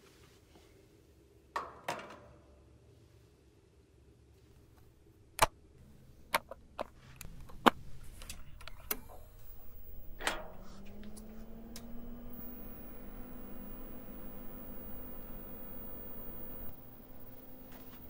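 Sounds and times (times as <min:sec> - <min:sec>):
low electrical hum rising in pitch: 0:04.5 - 0:18.0.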